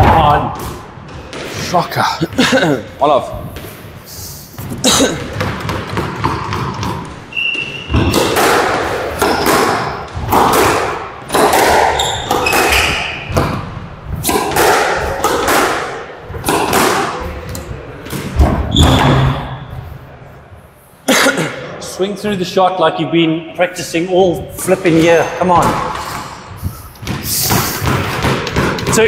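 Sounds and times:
squash ball hitting rackets and walls: 0.0 - 2.7, 4.6 - 19.7, 24.6 - 29.0
shoe squeaks: 7.3 - 8.3, 11.9 - 13.4, 18.6 - 19.8.

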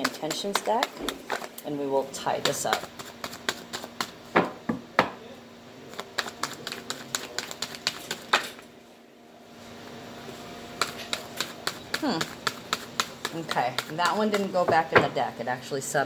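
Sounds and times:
cards being shuffled: 5.9 - 8.6, 10.8 - 14.6.

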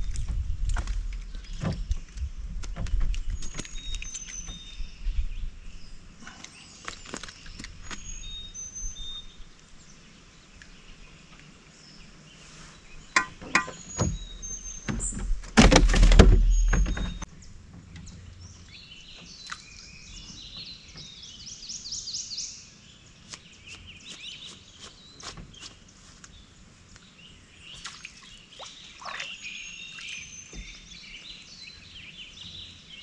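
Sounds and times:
birds chirping: 1.1 - 33.0
loud bumping rustle: 13.2 - 18.2.

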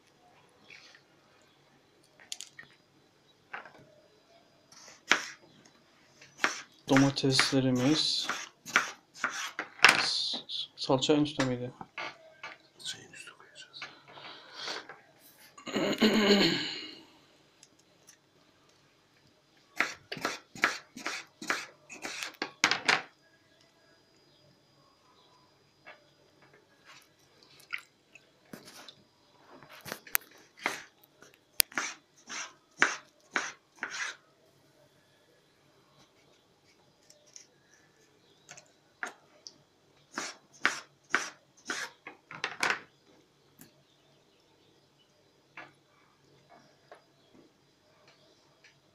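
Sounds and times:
knife cutting on plastic board: 4.8 - 5.4, 6.4 - 9.7, 19.8 - 22.4, 31.7 - 34.2.

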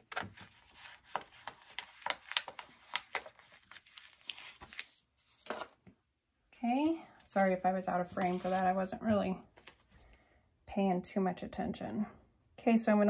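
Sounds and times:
tape and paper crinkling: 0.0 - 5.8, 8.0 - 9.9.

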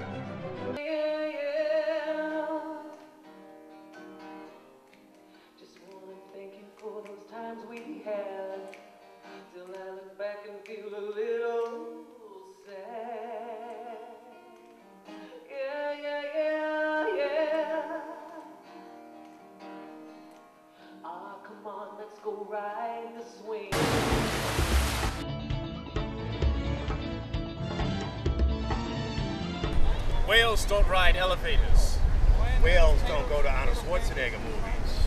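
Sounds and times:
woman singing: 0.8 - 3.2, 5.6 - 18.7, 20.9 - 23.8
acoustic guitar strumming: 23.7 - 25.2
loud rushing noise: 23.7 - 25.2.

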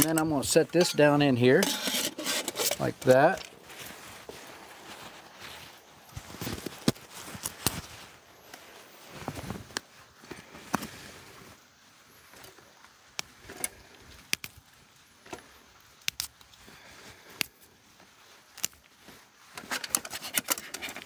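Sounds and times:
metal pot clicks and clinks: 1.6 - 2.8.

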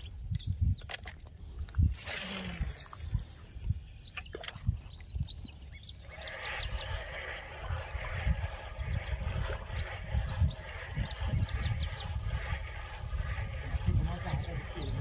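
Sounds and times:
small birds chirping: 0.0 - 1.1, 2.4 - 8.0, 8.6 - 15.0
fishing line hissing off spool: 1.9 - 4.7
fishing reel cranking whir: 2.0 - 4.7, 6.1 - 15.0.

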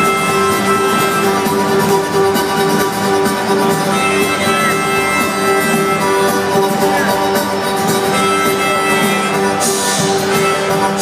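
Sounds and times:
harmonica long notes: 0.0 - 11.0
strummed acoustic guitar: 0.0 - 11.0.

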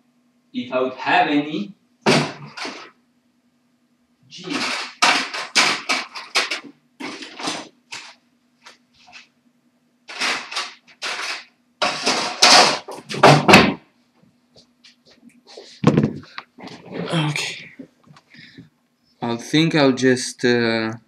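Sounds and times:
drawers and cupboards clattering: 2.1 - 2.9, 4.3 - 8.2, 10.1 - 13.8.

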